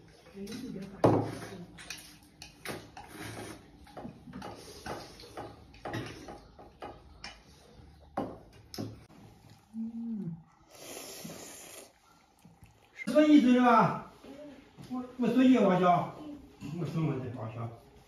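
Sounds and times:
noodles being slurped: 0:01.5 - 0:05.3, 0:09.3 - 0:13.1.

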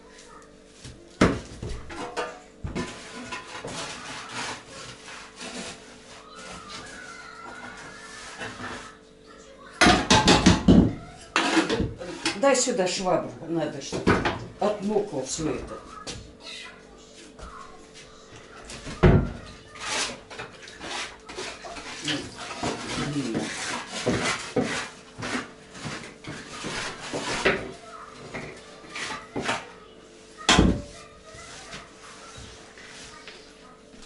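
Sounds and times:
mop scrubbing wooden floor: 0:00.0 - 0:09.0, 0:11.0 - 0:16.3, 0:17.1 - 0:34.0
dustpan scraping: 0:02.7 - 0:09.0, 0:11.3 - 0:12.6, 0:19.4 - 0:33.4.

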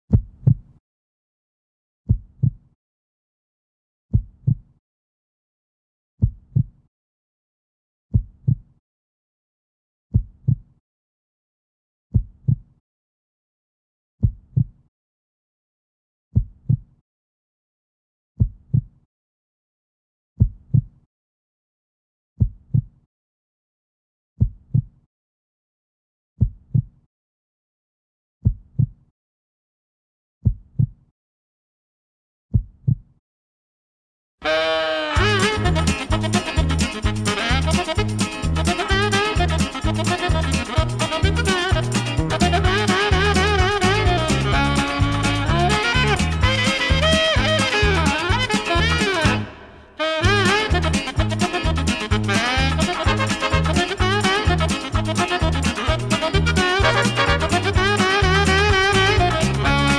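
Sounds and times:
heartbeat double thump: 0:02.1 - 0:02.6, 0:04.1 - 0:04.6, 0:08.1 - 0:08.6, 0:12.1 - 0:12.6, 0:14.2 - 0:14.8, 0:16.4 - 0:16.9.

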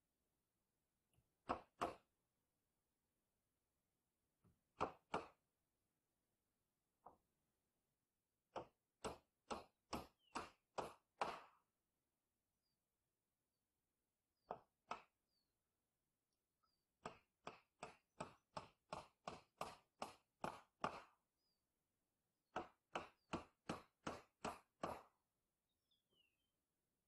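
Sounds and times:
hammer driving nails into wood: 0:01.4 - 0:02.1, 0:04.7 - 0:05.4, 0:08.5 - 0:11.7, 0:14.4 - 0:15.2, 0:17.0 - 0:21.2, 0:22.5 - 0:25.2
faint bird chirps: 0:16.3 - 0:17.0, 0:25.7 - 0:26.7.

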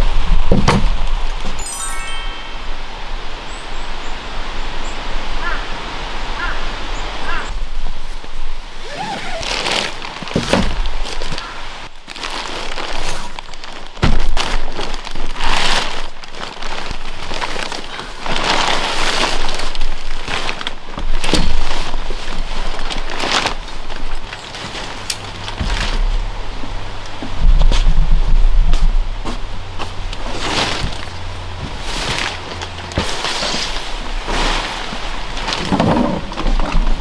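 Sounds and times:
nylon tent fabric rustling: 0:07.7 - 0:37.0.

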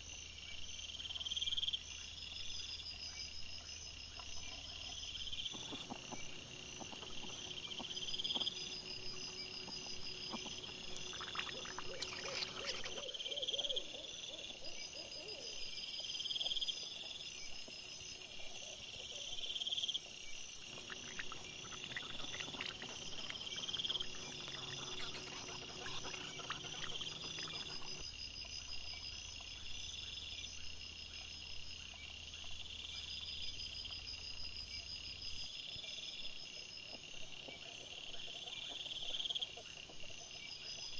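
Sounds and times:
crickets chirping: 0:00.0 - 0:40.9
animals crunching and rustling: 0:05.5 - 0:13.1, 0:20.6 - 0:28.0.

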